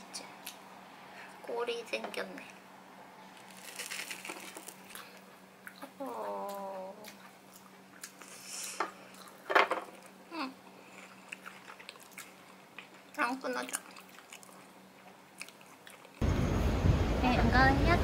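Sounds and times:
person humming: 10.3s - 10.6s.

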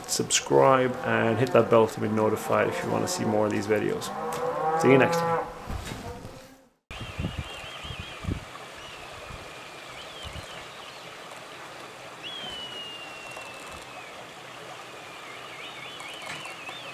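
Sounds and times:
kites calling with high whistles: 6.9s - 11.1s, 12.2s - 16.9s
long falling whistle: 12.3s - 14.1s.

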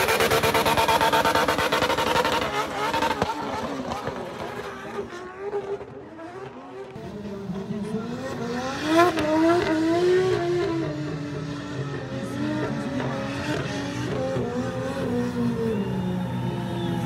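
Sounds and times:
car engine revving hard: 0.0s - 17.0s.

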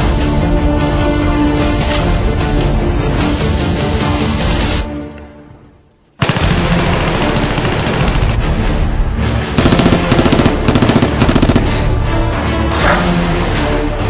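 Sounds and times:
background music: 0.0s - 14.0s
automatic gunfire: 6.2s - 8.4s, 9.6s - 11.8s.

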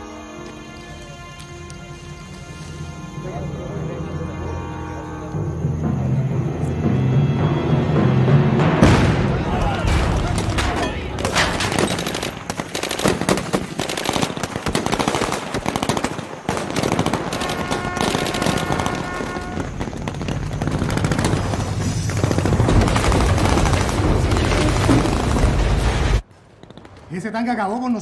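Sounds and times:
rifle and machine-gun fire: 9.9s - 26.2s.

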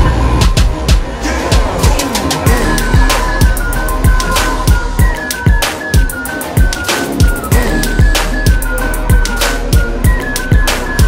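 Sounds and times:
electronic music with heavy beat: 0.0s - 11.0s.

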